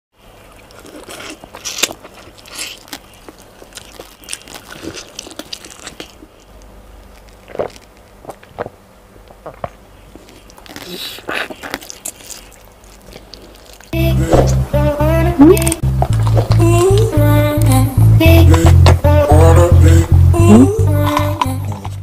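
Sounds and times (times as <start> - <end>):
person biting and chewing: 0.5 - 14.6, 15.6 - 17.1, 18.2 - 19.6.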